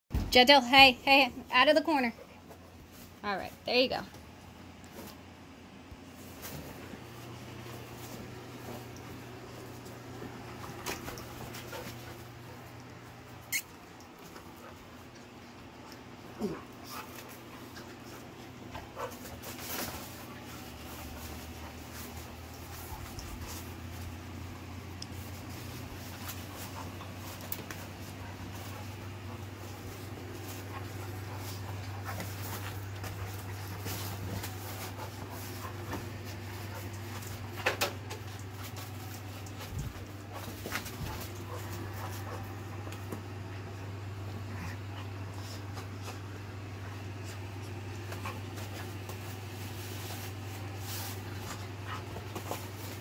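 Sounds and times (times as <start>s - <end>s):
dogs scuffling clicks: 16.8s - 43.4s.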